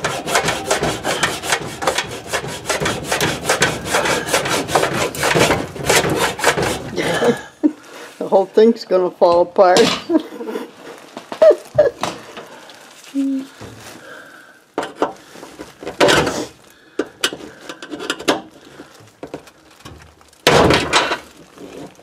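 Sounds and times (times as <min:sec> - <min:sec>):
metal tool clanking and scraping: 0:00.0 - 0:07.0, 0:17.1 - 0:18.5.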